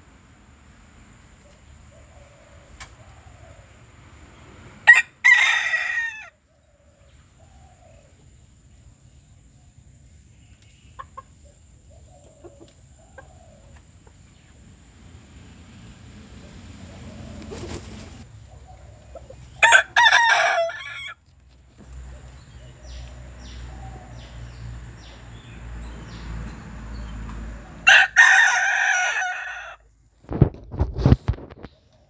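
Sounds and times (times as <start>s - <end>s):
rooster crowing: 4.8s - 6.5s, 19.6s - 21.2s, 27.7s - 29.8s.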